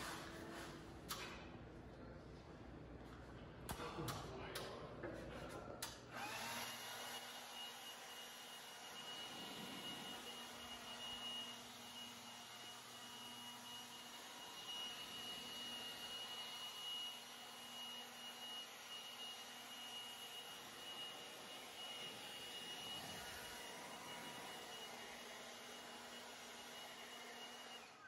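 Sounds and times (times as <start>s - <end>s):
electric blower running: 6.1s - 28.0s.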